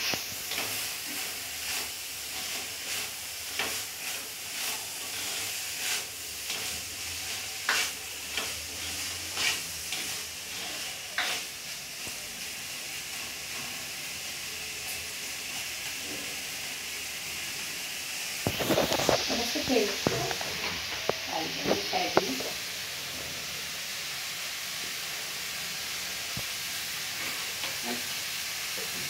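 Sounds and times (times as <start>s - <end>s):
wooden spatula scraping a pan: 0.0s - 11.7s, 18.4s - 23.4s
vegetables sizzling in oil: 0.0s - 29.0s.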